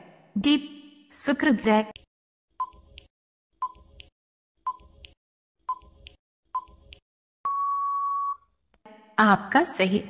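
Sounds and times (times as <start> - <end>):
long steady beep: 7.4 - 8.4.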